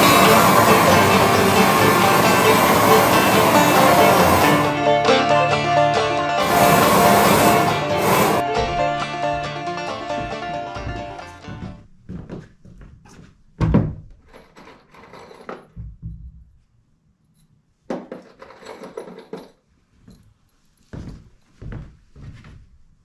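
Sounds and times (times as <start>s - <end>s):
footsteps on wooden boards: 8.6s - 14.2s, 20.9s - 22.8s.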